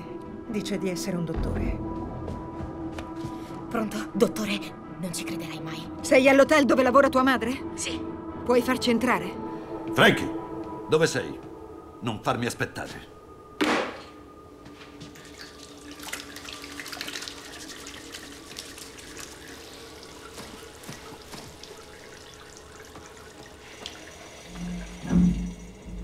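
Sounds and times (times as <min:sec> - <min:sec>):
water trickling and dripping: 0:15.0 - 0:26.0.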